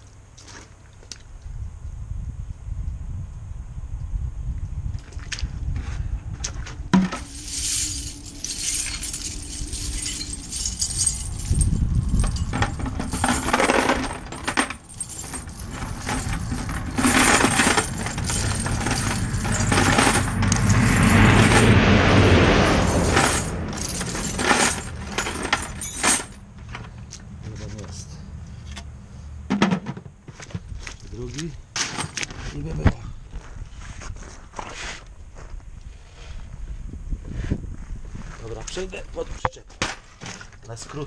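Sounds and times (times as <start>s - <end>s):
metal chains rattling in bucket: 7.0s - 21.7s, 22.8s - 26.8s
loud metal clank: 12.2s - 26.4s.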